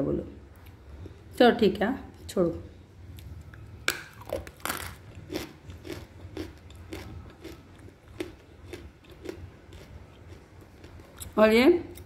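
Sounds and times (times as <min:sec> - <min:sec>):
person chewing with crunches: 0:03.1 - 0:12.0.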